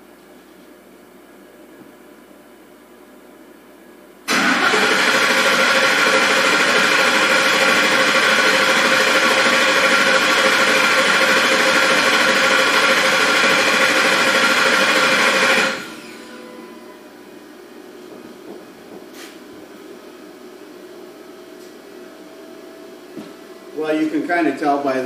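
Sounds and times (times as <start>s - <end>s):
engine cranking on starter: 4.3s - 15.9s.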